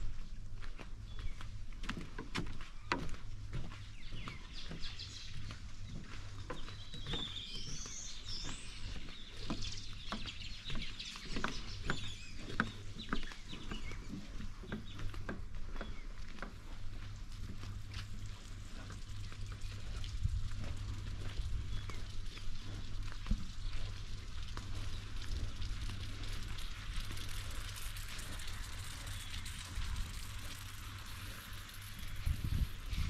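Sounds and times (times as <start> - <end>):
footsteps on wooden footbridge: 0.0 - 28.6
low steady hum: 0.0 - 33.0
birds chirping and calling: 2.9 - 16.4.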